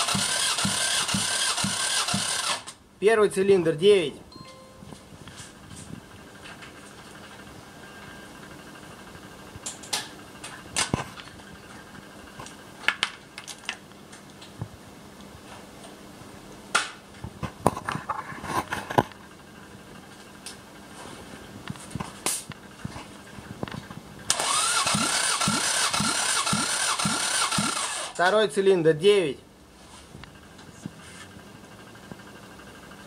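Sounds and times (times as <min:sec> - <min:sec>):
starter motor cranking engine: 0:00.0 - 0:02.8, 0:24.3 - 0:28.2.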